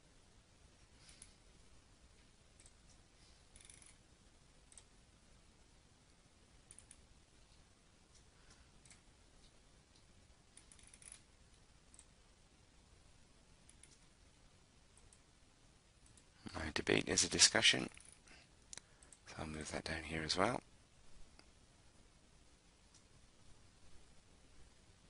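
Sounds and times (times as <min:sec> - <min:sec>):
computer mouse clicks: 0:02.6 - 0:04.0, 0:04.7 - 0:04.9, 0:06.7 - 0:12.1, 0:13.6 - 0:14.1, 0:16.0 - 0:16.3.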